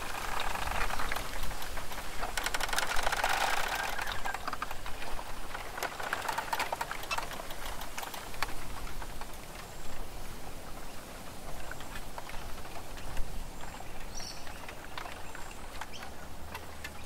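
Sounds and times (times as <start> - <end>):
rapid irregular tapping and clicking: 0.0 - 10.1.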